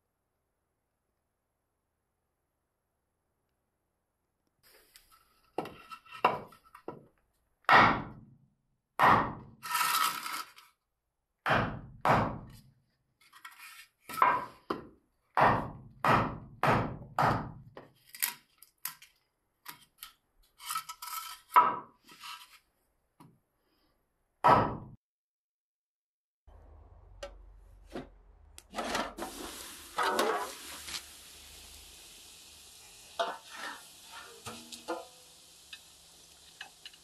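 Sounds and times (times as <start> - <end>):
axe chopping into wood: 7.7 - 8.2, 9.0 - 9.4, 11.5 - 12.5, 15.4 - 17.6, 24.5 - 24.9
blade scraping wood chips: 9.6 - 10.6.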